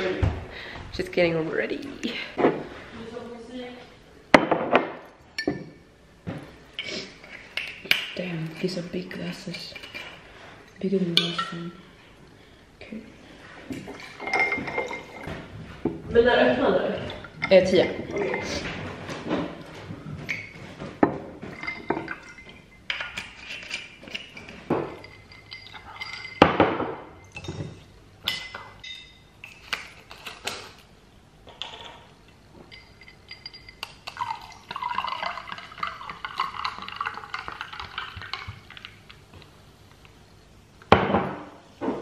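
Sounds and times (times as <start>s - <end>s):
ice and glass clinking: 13.9s - 15.3s, 21.5s - 29.6s, 32.7s - 39.0s
drink pouring over ice: 34.0s - 39.2s.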